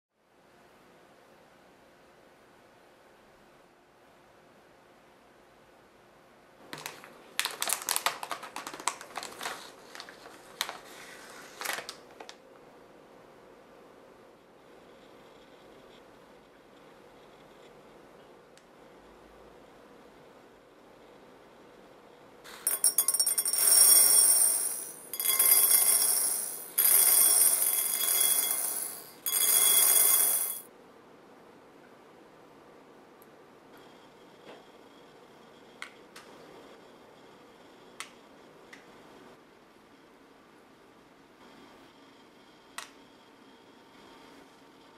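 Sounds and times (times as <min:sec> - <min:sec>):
plastic and foil wrapper crinkling: 0:06.8 - 0:12.4
candy beads rattling into bowl: 0:22.7 - 0:30.6.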